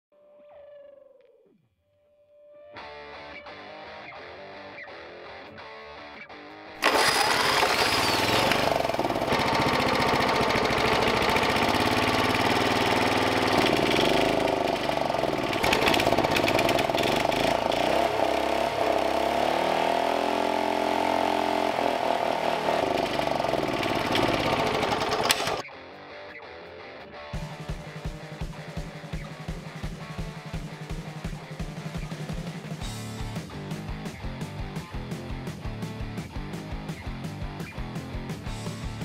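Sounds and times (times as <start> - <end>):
lawnmower engine running: 6.8 - 25.6.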